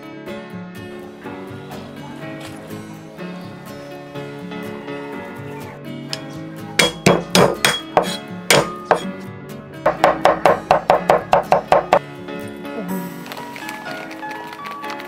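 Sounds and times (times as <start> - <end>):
background music: 0.0 - 15.0
cleaver chopping on wooden block: 6.8 - 9.1.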